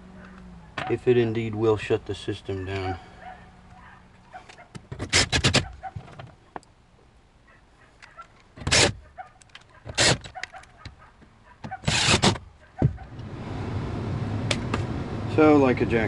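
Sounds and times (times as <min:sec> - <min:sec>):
furnace blower motor ramping up: 0:13.1 - 0:16.0.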